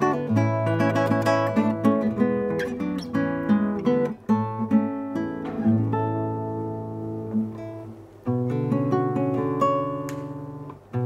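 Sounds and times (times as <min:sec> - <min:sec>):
classical guitar playing: 0:00.0 - 0:11.0.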